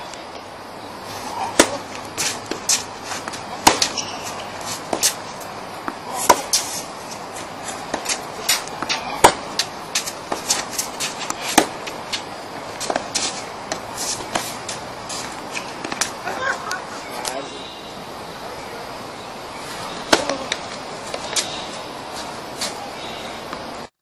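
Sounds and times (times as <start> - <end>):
tennis balls struck with racquets: 1.2 - 17.4, 19.6 - 21.5
tennis ball bounces: 1.3 - 17.4, 19.7 - 21.5.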